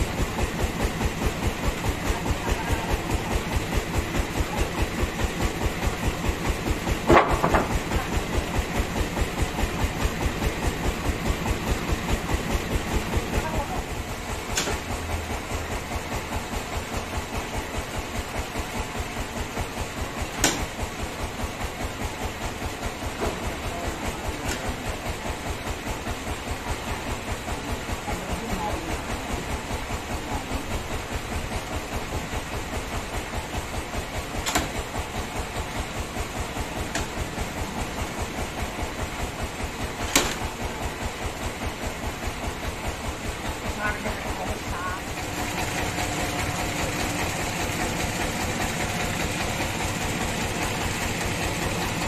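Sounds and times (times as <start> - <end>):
sawmill machinery beating: 0.0 - 52.0
sharp knocks: 7.0 - 7.8, 20.4 - 20.8, 40.1 - 40.6.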